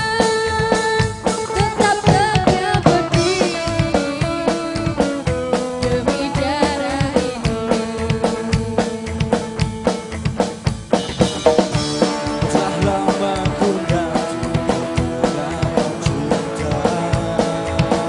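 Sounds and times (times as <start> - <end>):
drum kit beat: 0.0 - 18.0
electric guitars: 0.0 - 18.0
double bass: 2.0 - 18.0.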